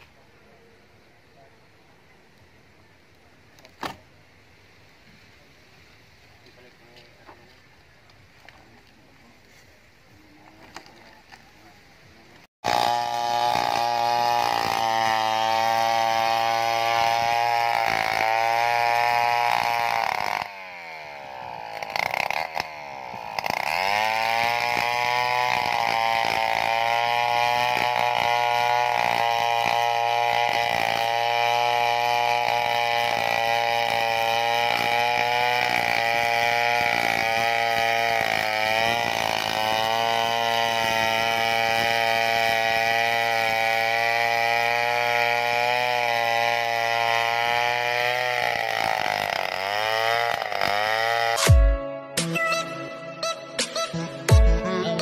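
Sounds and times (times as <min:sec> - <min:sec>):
chainsaw cutting log: 0:03.6 - 0:04.1, 0:12.4 - 0:55.0.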